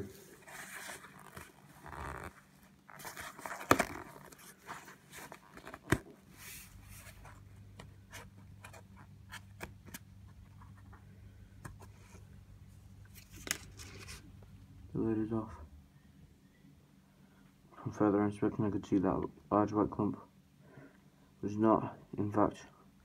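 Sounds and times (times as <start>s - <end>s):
plastic tub rustling and scraping: 0.0s - 7.4s.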